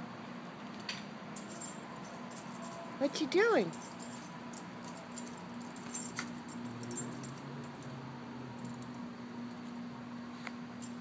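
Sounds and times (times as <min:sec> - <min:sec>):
steady low hum: 0:00.0 - 0:11.0
dog tags jingling: 0:01.4 - 0:08.0.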